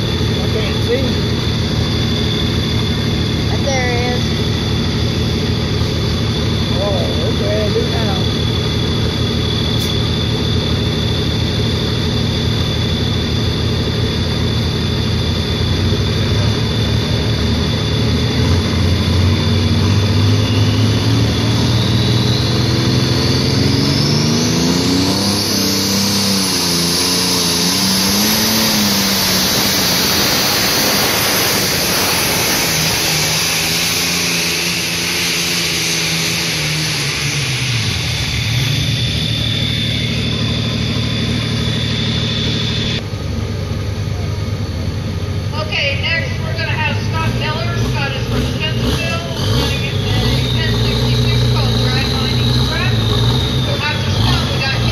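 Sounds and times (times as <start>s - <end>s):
high whine: 0.0s - 54.9s
tractor engine working hard: 0.0s - 54.9s.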